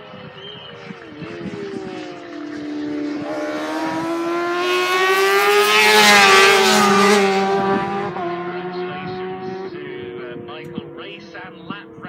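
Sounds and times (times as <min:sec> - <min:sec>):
racing motorcycle passing at speed: 0:00.1 - 0:12.0.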